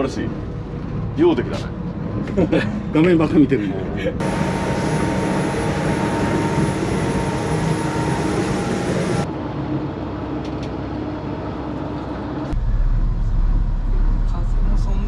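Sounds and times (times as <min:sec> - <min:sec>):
motorboat engine drone: 0:04.0 - 0:14.8.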